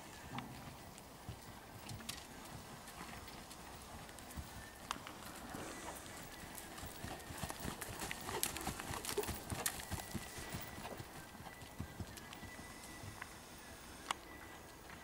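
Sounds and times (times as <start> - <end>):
horse hoofbeats on sand: 6.0 - 13.2.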